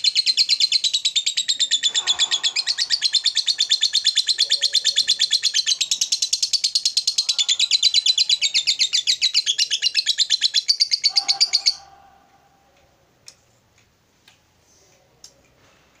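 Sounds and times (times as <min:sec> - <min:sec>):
lovebird chattering trill: 0:00.0 - 0:12.0.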